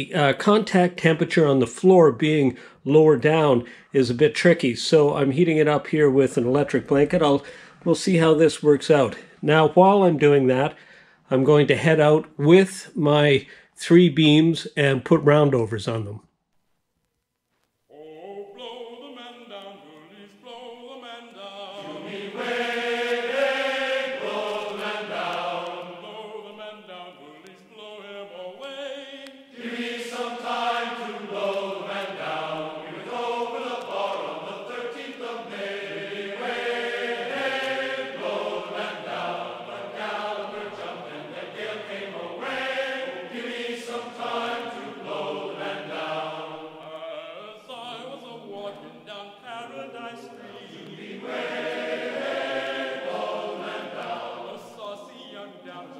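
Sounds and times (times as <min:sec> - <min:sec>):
music with chant-like voices: 0:17.9 - 0:55.9.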